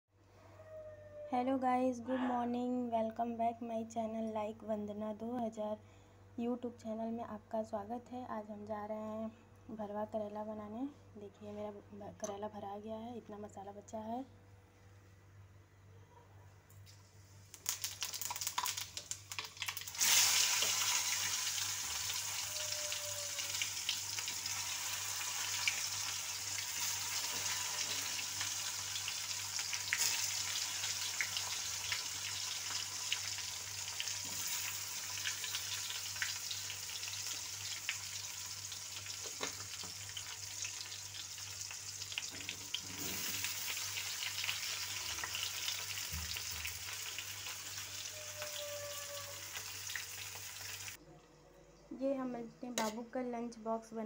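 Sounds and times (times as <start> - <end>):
vegetables sizzling in hot oil: 17.4 - 51.0.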